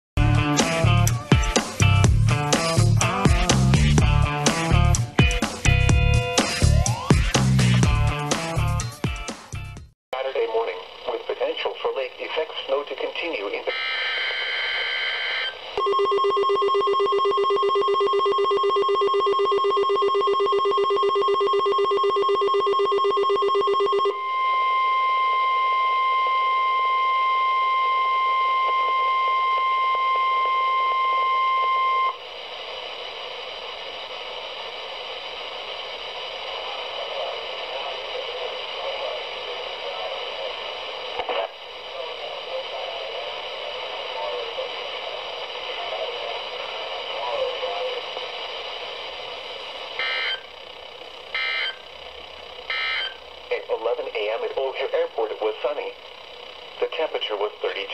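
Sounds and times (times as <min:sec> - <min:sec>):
pulsing electronic alarm: 0:13.7 - 0:32.2, 0:49.6 - 0:57.1.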